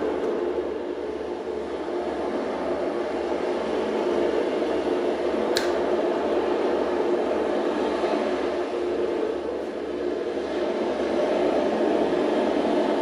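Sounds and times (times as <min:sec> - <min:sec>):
steady roar of noise: 0:00.0 - 0:13.0
sharp click: 0:05.5 - 0:05.8.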